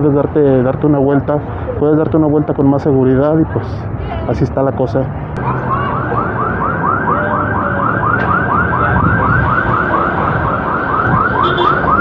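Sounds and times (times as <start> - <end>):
street traffic: 0.0 - 12.0
car alarm warbling: 5.6 - 12.0.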